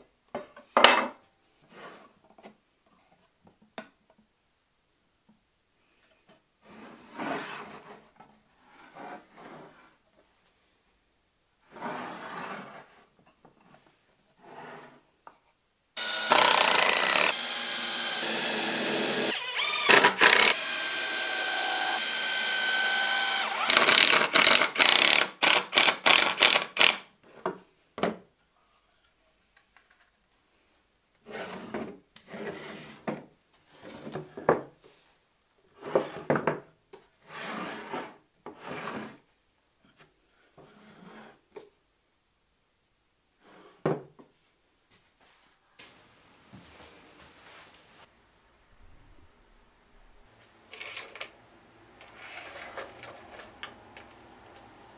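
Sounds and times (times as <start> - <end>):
cordless drill driving screws: 16.0 - 27.0.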